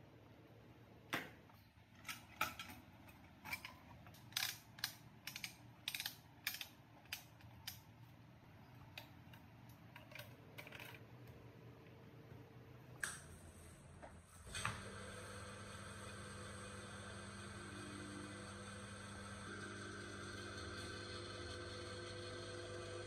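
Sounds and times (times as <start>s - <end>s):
metal parts clicking and tapping: 2.0s - 7.8s, 8.9s - 11.0s.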